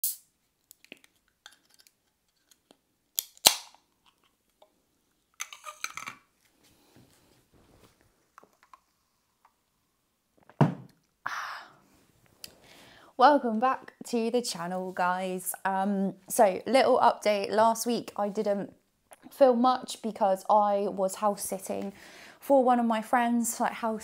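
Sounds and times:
rustling: 6.4 - 9.1.

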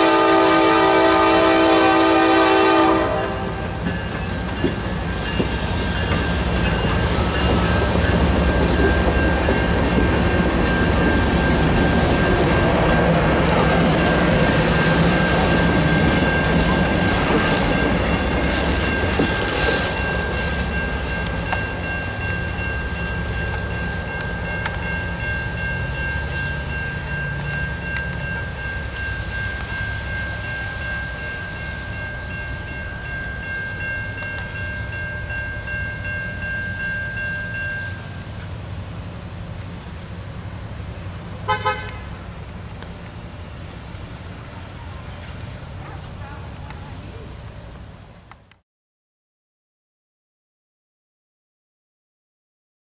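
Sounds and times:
train horn toots: 0.0 - 3.8, 41.4 - 42.2
train rumble: 0.0 - 48.5.

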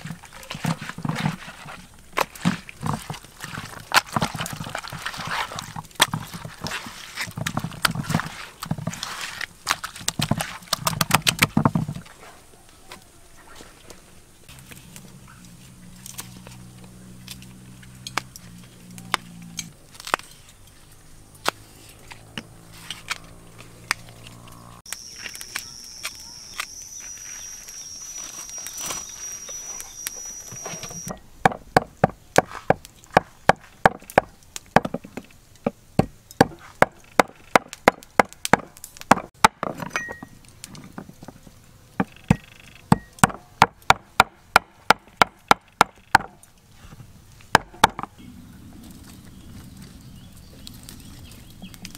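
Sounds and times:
high thin whine: 21.6 - 31.2.

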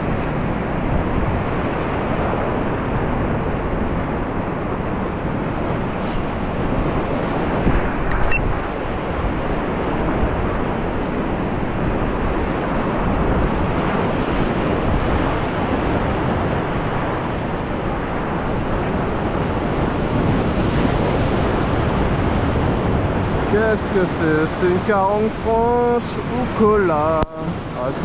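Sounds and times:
surf breaking over rocks: 0.0 - 28.0
wind on microphone: 0.0 - 28.0.

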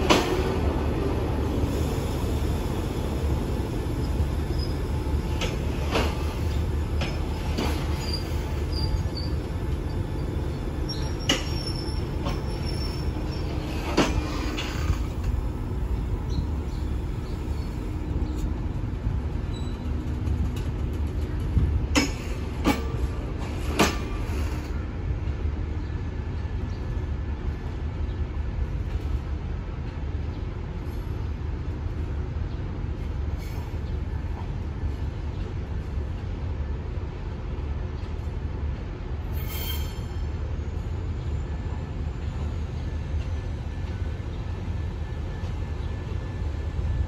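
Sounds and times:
train wheels clicking over rail joints: 0.0 - 1.1, 4.0 - 15.6, 16.3 - 24.8
train rumble: 0.0 - 47.0.

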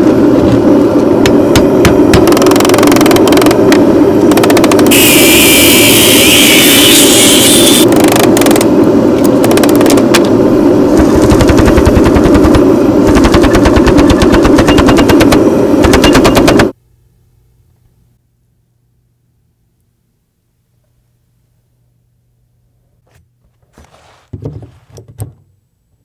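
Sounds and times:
steady machine hum: 0.0 - 23.5
power hammer striking steel: 1.2 - 8.6, 11.0 - 16.8.

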